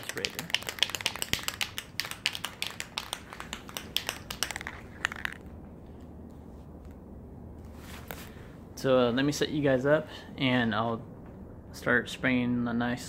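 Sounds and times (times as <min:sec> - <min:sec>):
rapid crackling and clicking: 0:00.0 - 0:05.5
low steady hum: 0:00.0 - 0:13.0.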